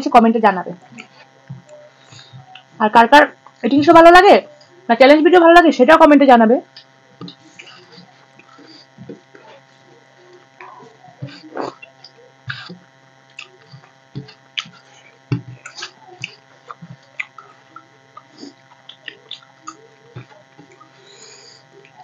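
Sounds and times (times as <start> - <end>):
faint electrical hum: 0.0 - 22.0
wet eating smacks and chewing: 11.2 - 20.9.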